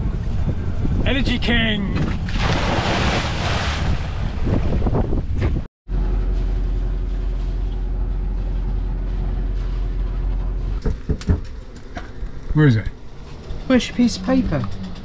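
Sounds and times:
wind buffeting microphone: 0.0 - 1.4, 2.0 - 5.7
water rushing and splashing: 2.2 - 5.0.

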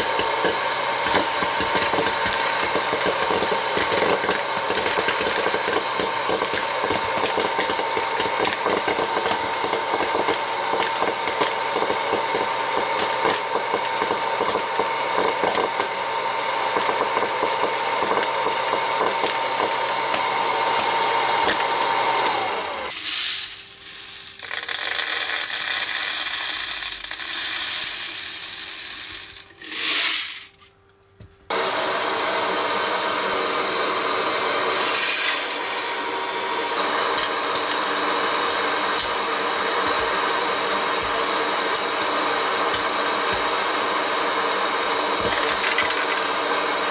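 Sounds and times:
popcorn popper fan motor hum: 0.0 - 30.5, 31.5 - 46.9
kernels popping: 22.9 - 30.6, 44.8 - 46.4.

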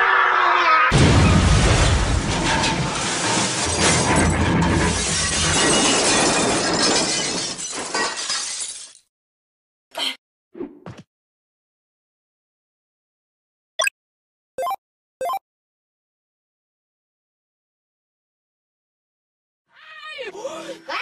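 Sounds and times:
cartoon vehicle crash: 0.9 - 8.1
glass shattering: 0.9 - 9.1.

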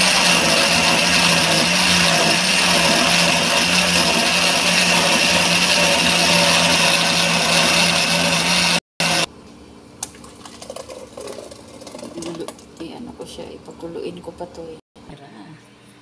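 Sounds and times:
electric blender whirring: 0.0 - 9.3.

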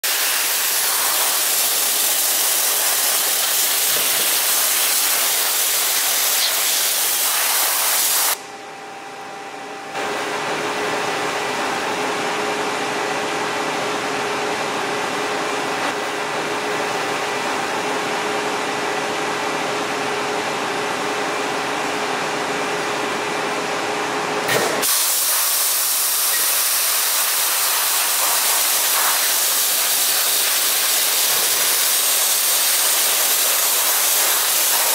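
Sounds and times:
dry ice blaster hissing: 0.0 - 8.4, 24.8 - 34.9
steady hum with held tones: 8.4 - 24.5.

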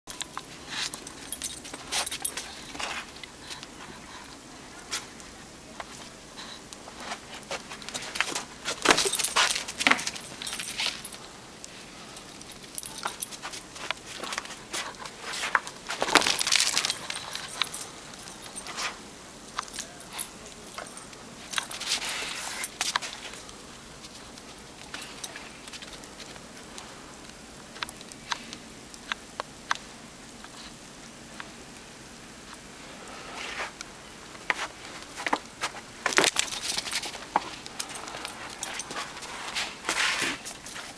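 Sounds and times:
dog paws crunching snow: 5.9 - 11.2, 11.9 - 19.0, 19.6 - 26.7, 34.4 - 40.9
footsteps crunching snow: 6.9 - 11.1, 13.2 - 19.0, 34.4 - 40.9.

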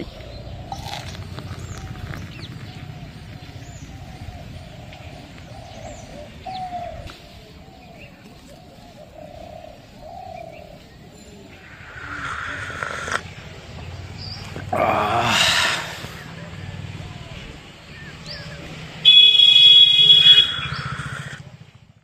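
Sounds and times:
doves cooing: 0.0 - 17.5, 20.3 - 21.6
high bird chirps: 19.8 - 21.4.

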